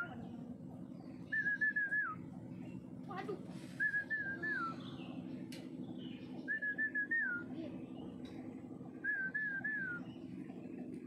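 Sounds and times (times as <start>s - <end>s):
steady low hum: 0.0s - 11.0s
bird whistling song: 1.0s - 2.3s, 3.7s - 5.2s, 5.9s - 7.6s, 9.0s - 10.3s.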